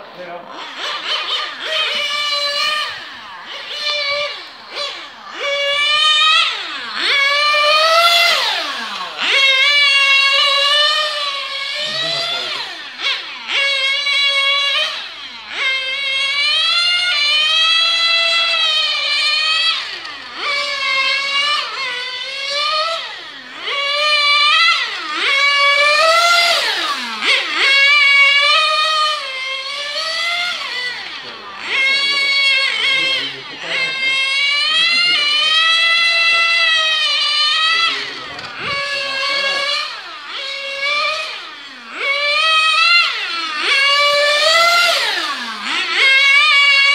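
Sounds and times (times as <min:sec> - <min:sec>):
rc car engine screaming: 0:00.0 - 0:46.9.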